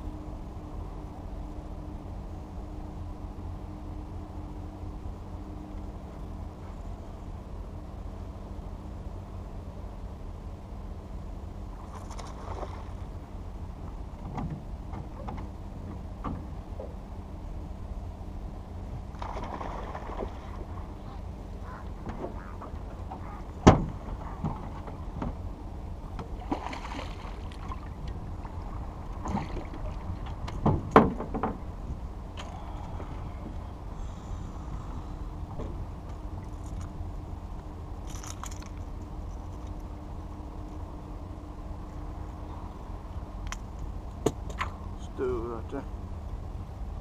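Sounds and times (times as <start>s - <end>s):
low rumble: 9.6s - 47.0s.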